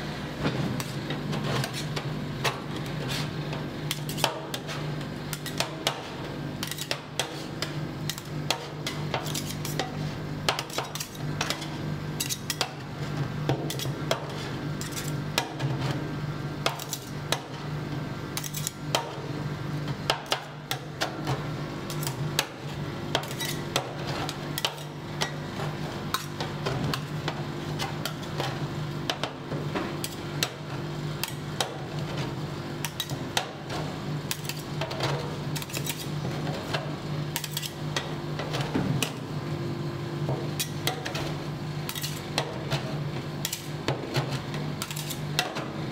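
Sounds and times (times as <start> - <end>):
steady low hum: 0.0 - 45.9
metal spatulas clattering and scraping: 3.9 - 12.8, 13.7 - 15.7, 16.6 - 17.2, 18.4 - 18.8, 23.1 - 27.1, 32.8 - 39.2, 40.6 - 45.7.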